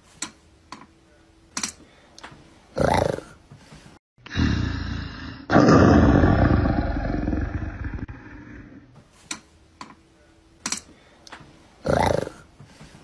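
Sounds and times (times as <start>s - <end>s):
big cat roaring: 4.3s - 8.9s, 11.8s - 12.4s.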